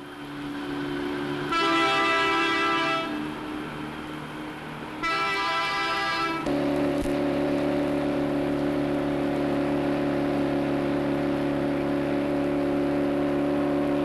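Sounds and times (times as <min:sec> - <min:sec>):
diesel engine drone: 0:00.0 - 0:14.0
diesel locomotive horn blasts: 0:01.4 - 0:03.5, 0:05.0 - 0:06.8.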